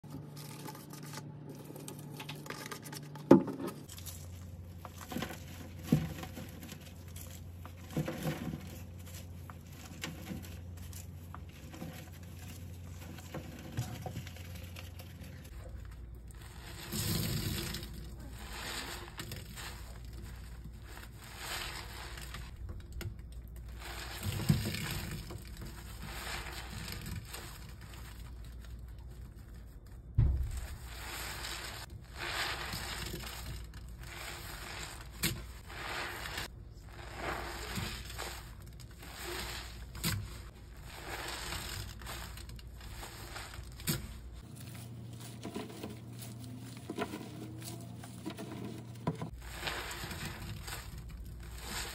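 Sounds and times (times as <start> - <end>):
wet sponge being squeezed: 23.5 - 51.9.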